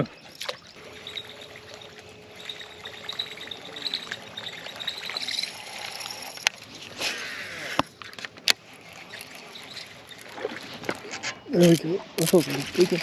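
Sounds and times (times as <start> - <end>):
steady high squeak: 0.0 - 13.0
lure blade gurgling on water: 0.3 - 8.0, 8.6 - 11.1
fishing reel cranking: 0.8 - 13.0.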